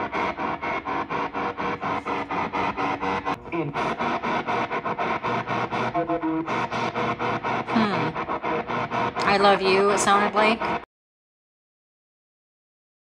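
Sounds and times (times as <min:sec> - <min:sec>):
radio music: 0:00.0 - 0:10.9
radio static: 0:00.0 - 0:10.9
broadcast voices: 0:01.6 - 0:10.8.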